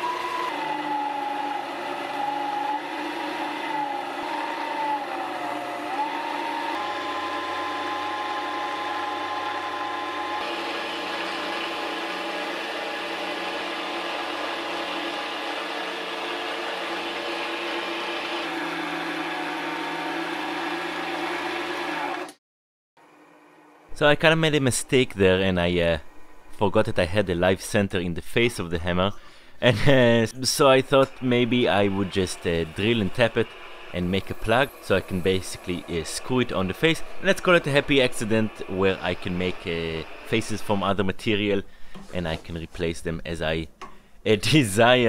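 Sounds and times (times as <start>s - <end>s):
tool scraping spinning workpiece: 0.0s - 22.3s, 30.8s - 42.5s
lathe motor whine: 0.0s - 22.4s, 30.8s - 41.0s.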